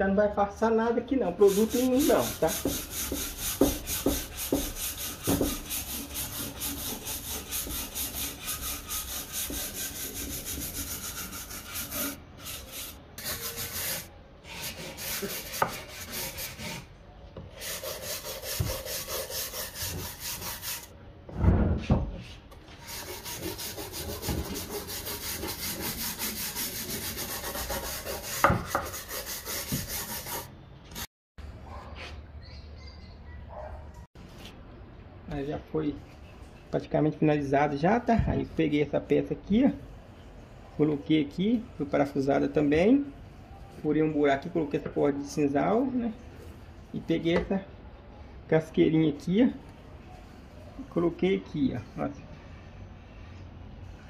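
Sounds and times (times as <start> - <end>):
wire brush scraping wood: 1.4 - 16.9.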